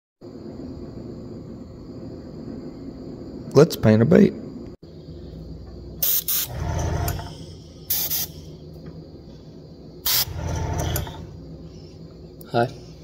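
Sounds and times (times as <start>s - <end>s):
low hum: 4.5s - 13.0s
airbrush air hiss: 6.0s - 6.6s, 7.2s - 8.6s, 10.0s - 10.4s.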